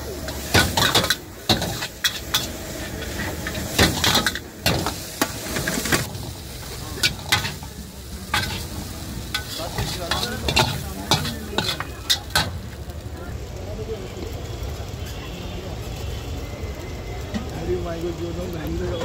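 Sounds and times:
food sizzling: 0.0 - 19.0
metal utensils clanking on wok: 0.1 - 12.8.

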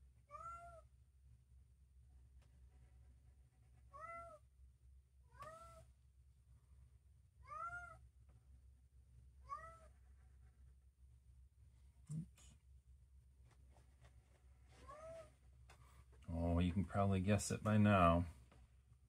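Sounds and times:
cat meowing: 0.3 - 0.9, 3.9 - 4.4, 5.3 - 5.9, 7.4 - 8.0, 9.4 - 10.0, 14.8 - 15.3.

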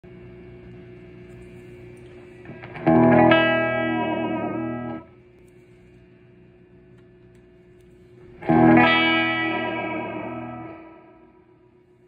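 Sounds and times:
steady electrical hum: 0.0 - 12.0
electric guitar chord ringing: 2.4 - 5.2, 8.4 - 11.7.

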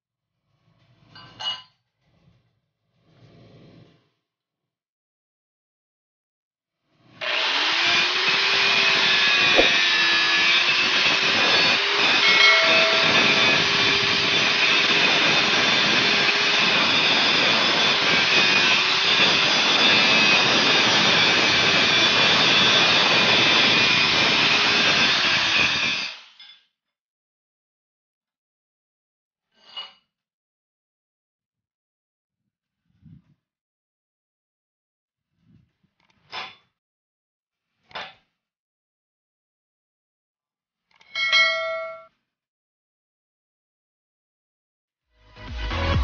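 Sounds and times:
angle grinder grinding metal: 7.1 - 26.4.

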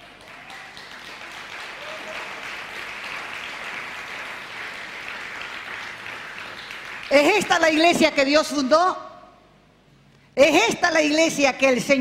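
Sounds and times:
congregation applauding: 0.0 - 7.9.

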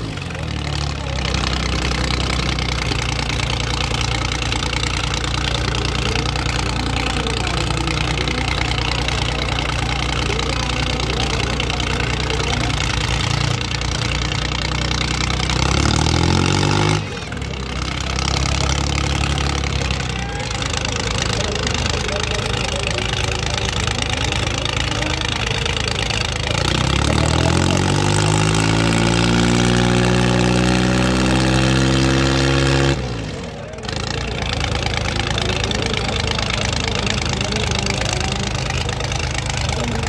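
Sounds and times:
tractor engines labouring: 0.0 - 40.0.

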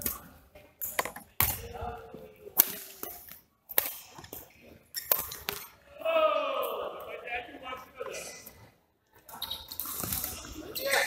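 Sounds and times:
rackets striking shuttlecock: 2.6 - 4.4.

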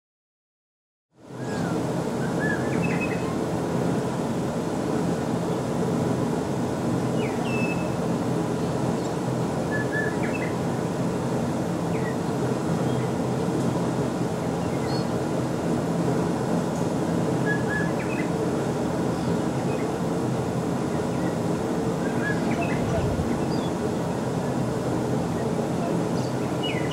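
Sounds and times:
bird chirps: 2.3 - 3.3, 26.2 - 26.9.

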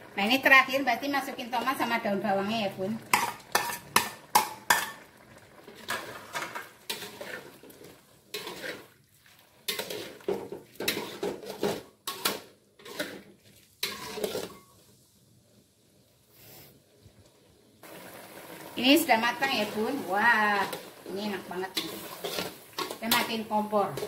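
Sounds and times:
braise simmering: 0.0 - 24.0
metal spatula scraping a wok: 3.1 - 5.0, 5.7 - 14.8, 20.6 - 24.0.

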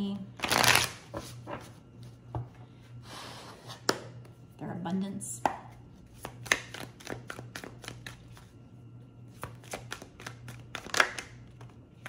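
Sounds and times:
faint steady hum: 0.0 - 12.0
cards being shuffled: 0.4 - 1.7, 6.2 - 8.5, 9.3 - 11.8.

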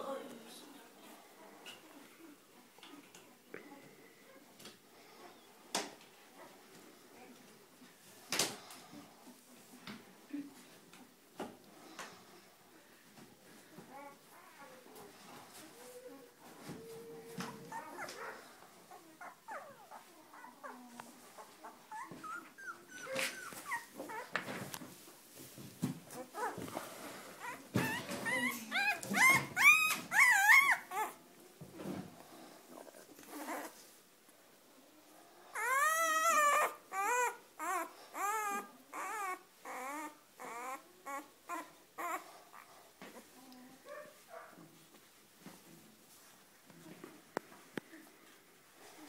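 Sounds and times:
puppies squeaking and whimpering: 21.4 - 24.3, 27.4 - 31.2, 35.6 - 42.2.

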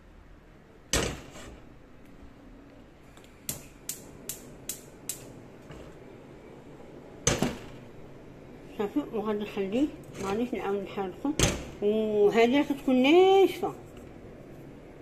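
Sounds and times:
gas hob igniter clicking: 3.4 - 6.0.

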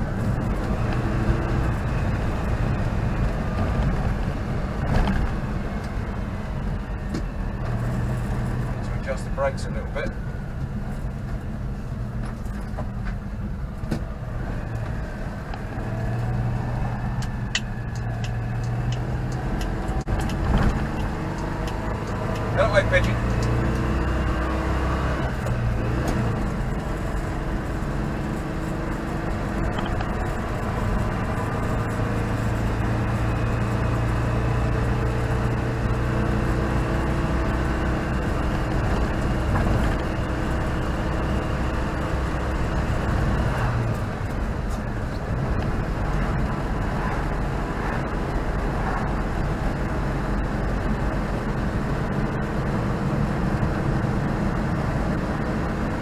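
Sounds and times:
car engine running: 0.0 - 56.0
tyre and road noise: 0.0 - 56.0.

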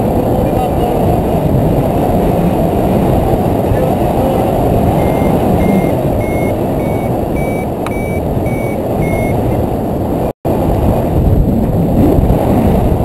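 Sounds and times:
wind rushing over microphone: 0.0 - 13.0
variometer beeping: 4.8 - 9.6.

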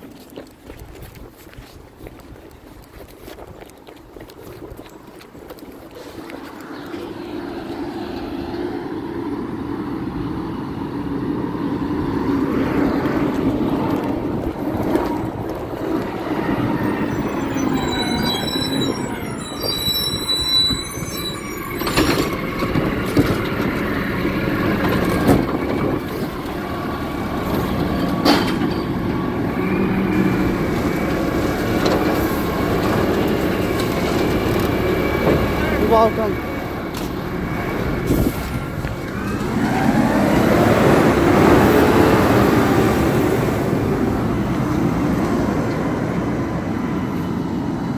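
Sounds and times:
garbage truck diesel engine: 5.9 - 47.9
high squeal: 15.9 - 23.2.

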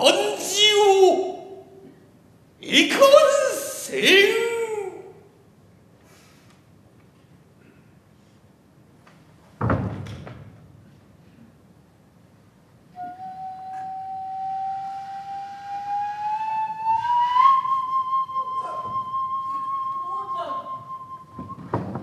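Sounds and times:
flute long rising note: 13.0 - 21.8.

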